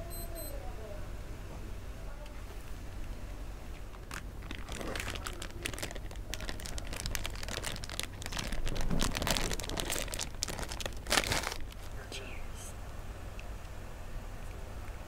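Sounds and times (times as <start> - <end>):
plastic wrappers crinkling and tearing: 3.7 - 12.0.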